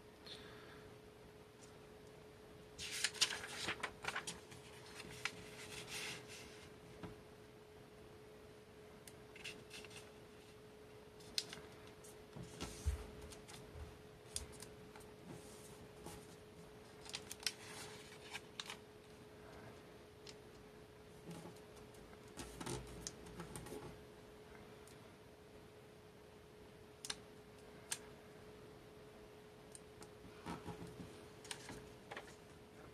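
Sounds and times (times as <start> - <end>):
paper rustling and crinkling: 2.8 - 6.7, 9.4 - 10.5, 11.2 - 18.8, 30.5 - 32.5.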